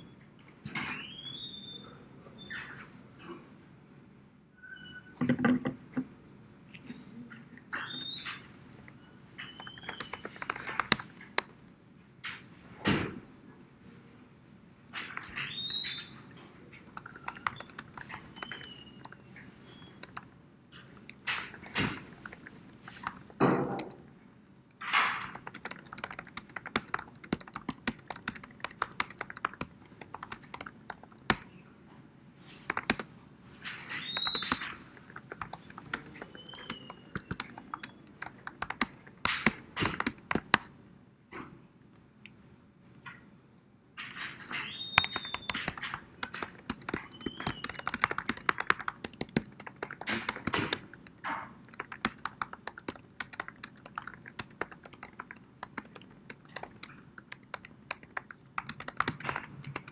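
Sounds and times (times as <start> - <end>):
typing on computer keyboard: 9.2 - 11.6, 15.0 - 24.1, 24.7 - 31.6, 32.5 - 33.1, 33.7 - 40.7, 44.5 - 59.9.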